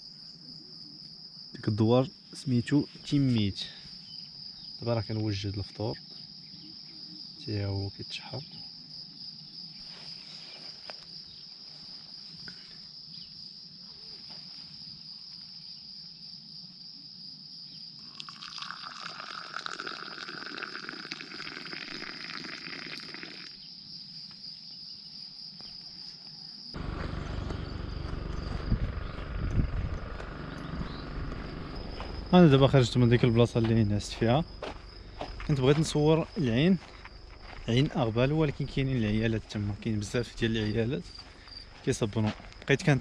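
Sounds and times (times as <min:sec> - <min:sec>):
crickets trilling: 0:00.0 - 0:43.0
low rumble: 0:26.8 - 0:38.7.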